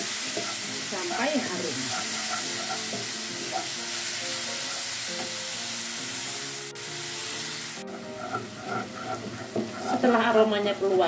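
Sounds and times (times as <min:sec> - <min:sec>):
wooden spatula stirring in wok: 0:00.0 - 0:03.8, 0:07.8 - 0:11.0
paste sizzling in hot oil: 0:00.0 - 0:11.0
soft background music: 0:00.0 - 0:11.0.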